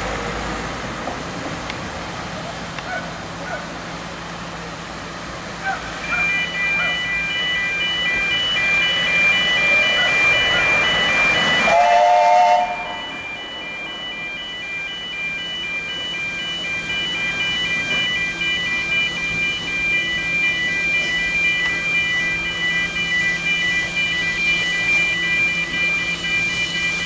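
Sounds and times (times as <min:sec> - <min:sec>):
level crossing alarm tones: 0:05.6 - 0:27.0
steam locomotive whistle: 0:09.5 - 0:14.2.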